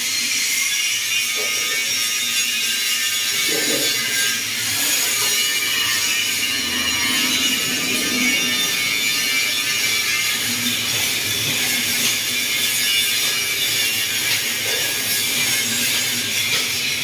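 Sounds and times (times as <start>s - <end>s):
high rasping hiss on metal: 0.0s - 17.0s.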